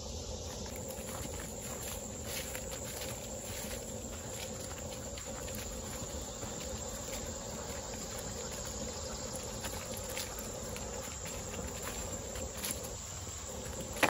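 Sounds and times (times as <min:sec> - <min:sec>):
footsteps on leafy dirt trail: 0:00.0 - 0:14.0
insect drone: 0:00.0 - 0:14.0
dog paws on leafy trail: 0:00.4 - 0:14.0.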